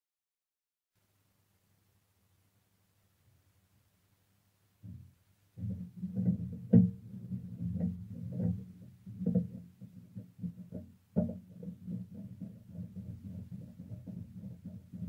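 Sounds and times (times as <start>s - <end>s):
knocking scraping and clattering: 5.6s - 15.0s.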